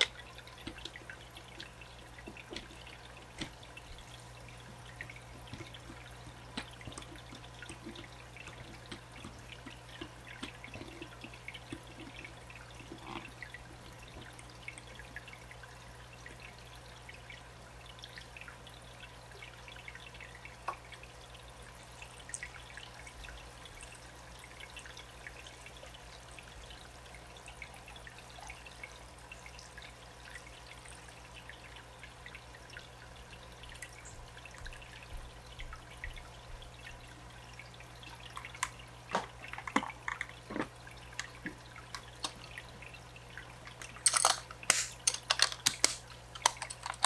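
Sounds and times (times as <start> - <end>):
dripping and trickling water: 0.0 - 47.0
low steady hum: 0.0 - 47.0
small plastic clicks and taps: 5.0 - 11.1, 43.7 - 47.0.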